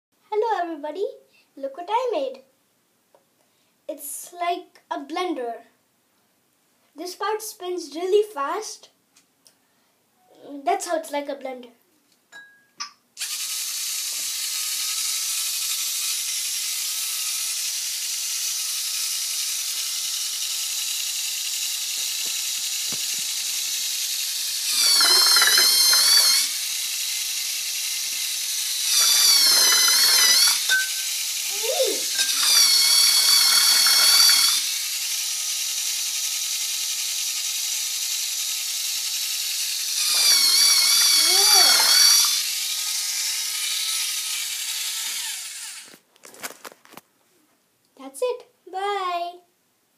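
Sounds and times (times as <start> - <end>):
motor whirring with high whine: 13.2 - 46.0.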